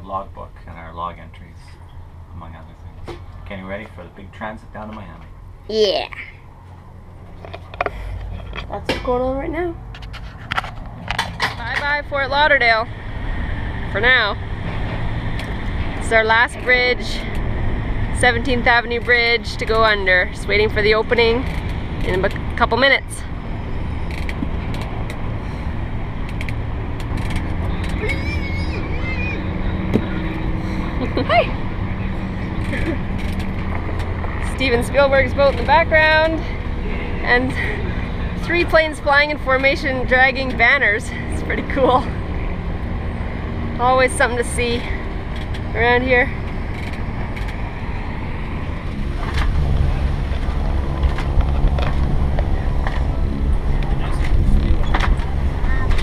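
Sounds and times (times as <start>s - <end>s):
boat engine idling: 13.6s - 42.8s.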